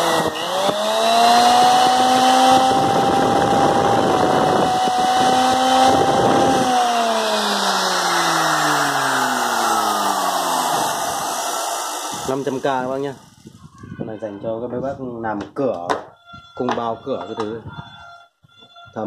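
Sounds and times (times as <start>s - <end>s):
electric groove cutter motor whine: 0.0s - 13.4s.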